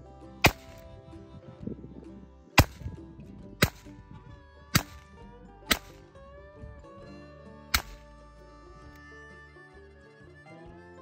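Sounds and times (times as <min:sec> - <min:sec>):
pistol shots: 0:00.4 - 0:00.8, 0:02.6 - 0:03.0, 0:03.6 - 0:04.0, 0:04.7 - 0:05.1, 0:05.7 - 0:06.1, 0:07.7 - 0:08.0.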